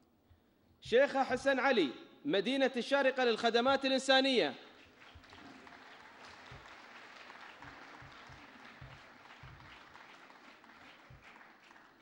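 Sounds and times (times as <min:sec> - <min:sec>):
faint audience applause: 0:04.8 - 0:12.0.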